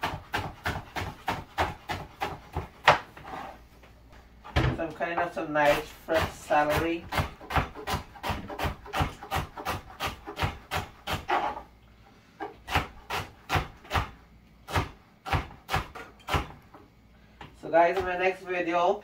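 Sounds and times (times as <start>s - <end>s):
knife chopping on wooden board: 0.0s - 3.4s, 5.6s - 11.6s, 12.4s - 16.6s.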